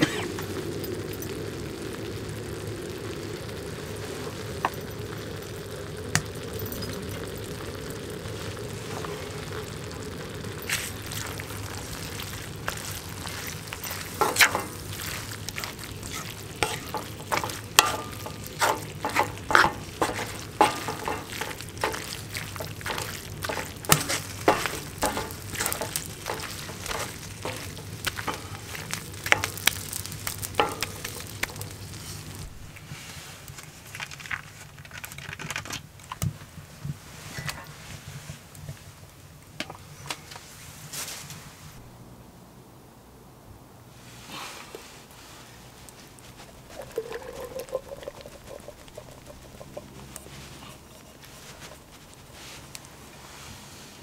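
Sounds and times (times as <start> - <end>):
meat and vegetables sizzling in a pan: 0.0 - 33.6, 44.5 - 54.0
wooden spatula scraping a pan: 10.7 - 33.5, 44.8 - 54.0.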